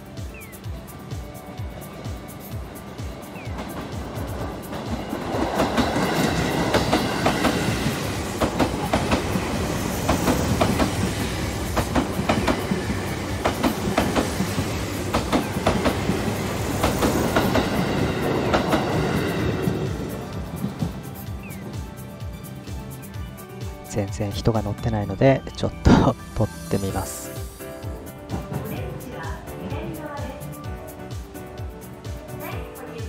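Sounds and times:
electric train passing: 0.0s - 33.0s
wheels clicking over rail joints: 3.3s - 19.8s.

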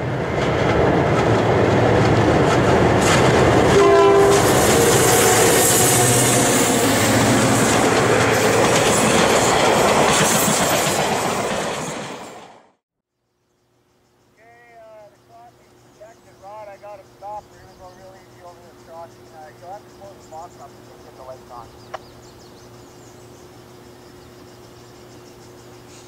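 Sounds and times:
train passing over steel bridge: 0.0s - 12.8s
wheels clattering on rail joints: 0.3s - 5.1s
train horn blast: 3.6s - 7.7s.

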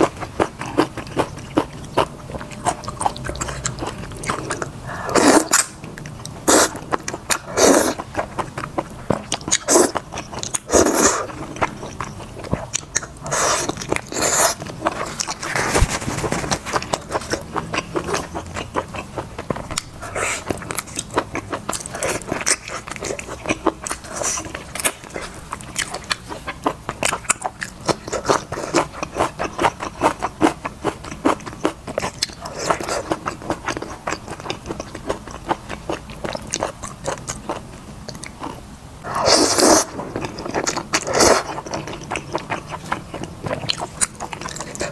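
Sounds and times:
wet chewing: 0.0s - 44.9s
person slurping noodles: 4.3s - 5.7s, 6.4s - 6.8s, 7.4s - 8.0s, 10.7s - 11.3s, 13.2s - 16.4s, 39.1s - 41.6s.

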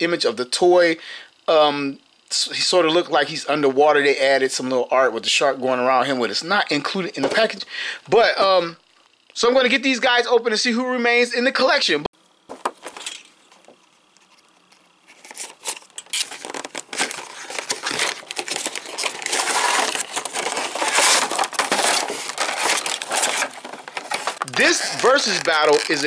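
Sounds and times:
packaging crinkling and crackling: 13.5s - 26.0s.

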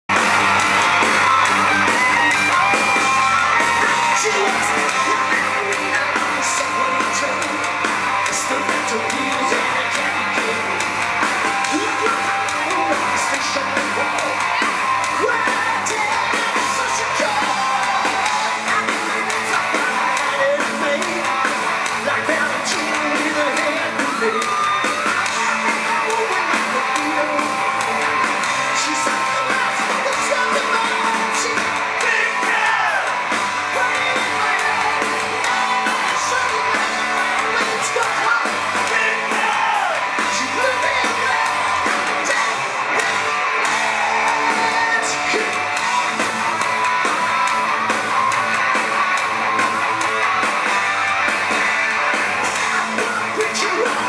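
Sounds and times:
drums: 0.0s - 54.0s
electric guitars: 0.0s - 54.0s
singer shouting: 0.4s - 7.6s, 11.6s - 21.4s, 22.0s - 45.9s, 52.4s - 54.0s.

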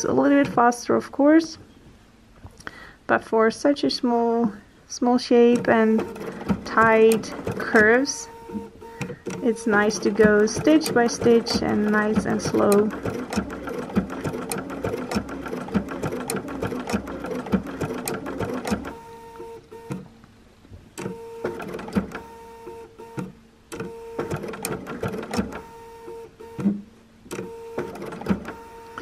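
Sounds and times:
sewing machine stitching: 5.4s - 20.0s, 21.0s - 29.0s.

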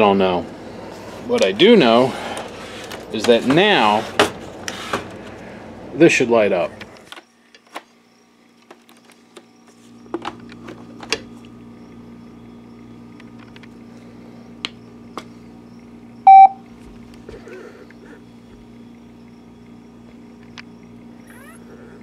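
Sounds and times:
projector short beep: 16.3s - 16.6s.

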